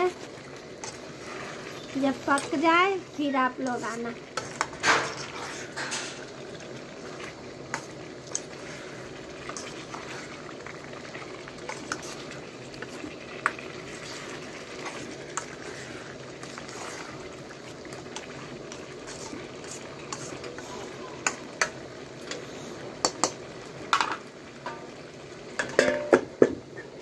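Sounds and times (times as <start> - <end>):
chicken sizzling in gravy: 0.0 - 27.0
steel spatula scraping pan: 0.8 - 2.6, 3.2 - 6.3, 13.8 - 17.3, 18.2 - 20.9.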